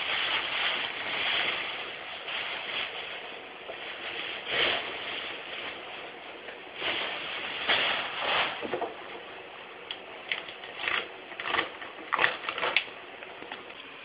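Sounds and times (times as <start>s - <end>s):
rustling and scraping: 0.0s - 9.2s.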